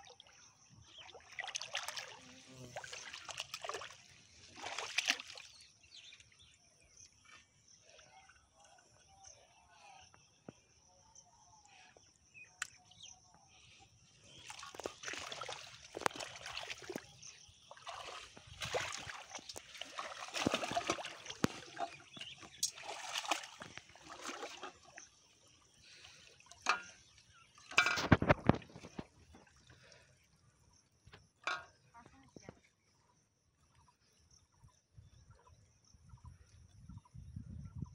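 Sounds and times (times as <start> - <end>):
pond water splashing: 0.0 - 9.0, 14.2 - 30.4, 31.4 - 32.2.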